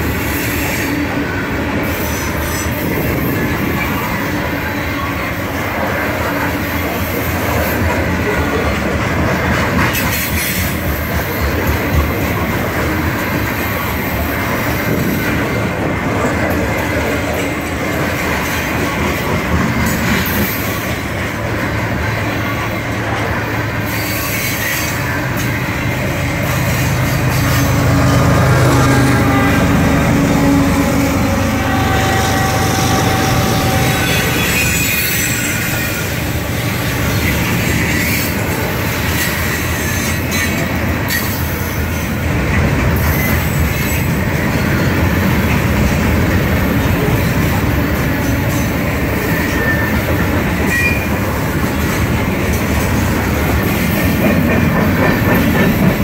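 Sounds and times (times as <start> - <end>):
diesel locomotive engine drone: 0.0 - 56.0
train wheels rumbling on rails: 0.0 - 56.0
wheel squeal: 31.7 - 36.2.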